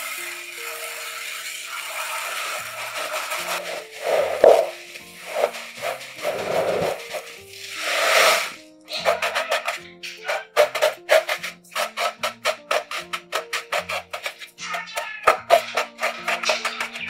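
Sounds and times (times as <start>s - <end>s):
background music held notes: 2.6s - 14.6s
kitchen scraping and rattling: 2.6s - 17.0s.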